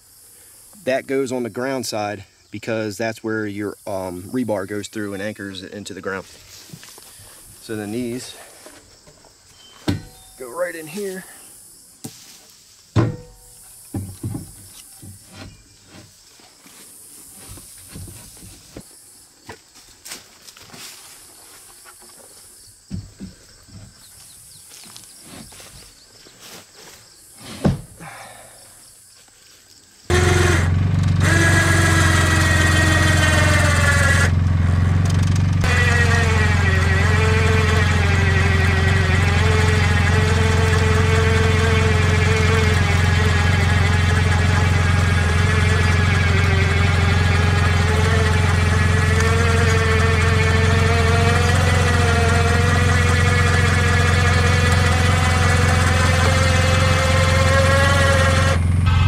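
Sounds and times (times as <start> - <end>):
knocks of wooden posts: 8.6 - 10.4, 12.9 - 16.1, 22.9 - 25.8, 27.5 - 28.0
atv engine running: 30.1 - 59.0
wavering whine: 35.0 - 59.0.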